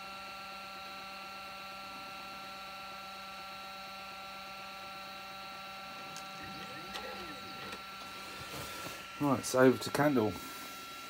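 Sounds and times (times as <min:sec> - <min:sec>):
stepper motors whining: 0:05.4 - 0:11.0.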